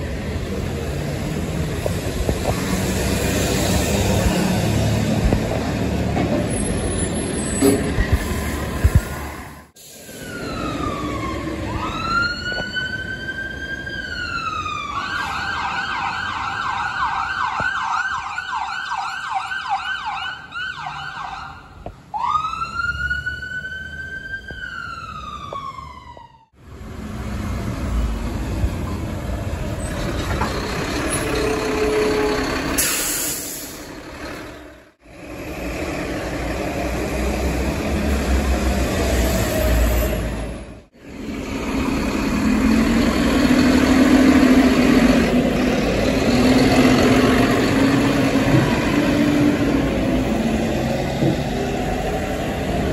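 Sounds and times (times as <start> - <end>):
heavy truck running: 0.0 - 12.0, 26.6 - 52.9
street traffic: 0.0 - 52.9
siren wailing and yelping: 22.2 - 26.5
garbage truck engine: 26.6 - 52.9.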